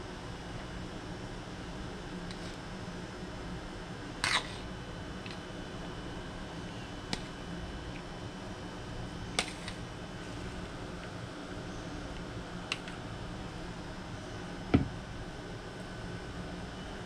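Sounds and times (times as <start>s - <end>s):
background hum: 0.0s - 17.0s
dull knock: 14.7s - 15.0s.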